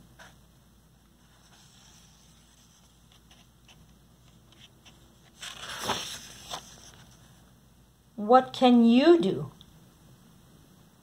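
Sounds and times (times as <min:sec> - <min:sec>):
faint handling sounds: 0:01.0 - 0:07.6
book page turning: 0:01.3 - 0:07.4.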